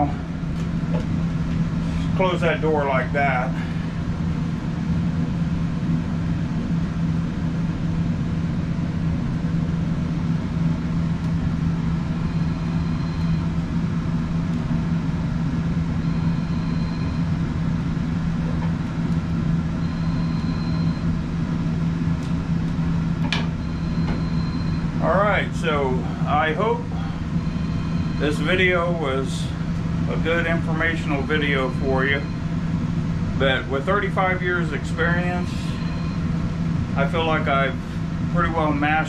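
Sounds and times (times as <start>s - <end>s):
electric fan humming: 0.0s - 39.0s.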